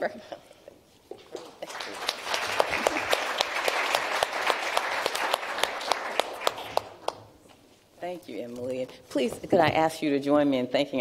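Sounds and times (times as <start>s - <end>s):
audience applauding: 1.2s - 7.2s.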